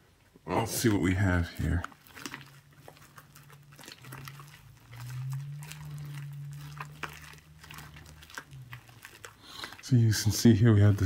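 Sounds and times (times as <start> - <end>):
slime squelching and crackling: 0.5 - 11.0
low hum: 2.6 - 9.4.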